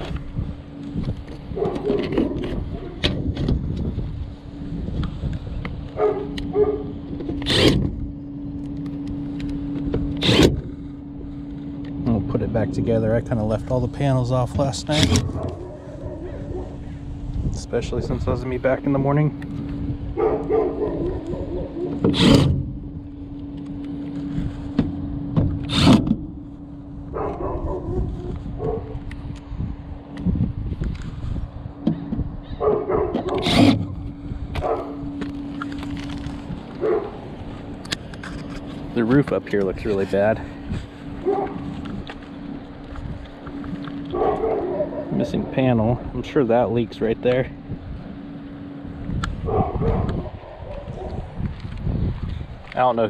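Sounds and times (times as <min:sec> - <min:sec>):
steady hum: 0:00.0 - 0:53.0
impact driver driving screws: 0:07.3 - 0:07.9, 0:10.1 - 0:10.6, 0:22.0 - 0:22.6, 0:25.6 - 0:26.2, 0:33.2 - 0:33.9
rasping scrapes: 0:07.3 - 0:07.9, 0:10.2 - 0:10.6, 0:25.6 - 0:26.1, 0:33.2 - 0:33.9.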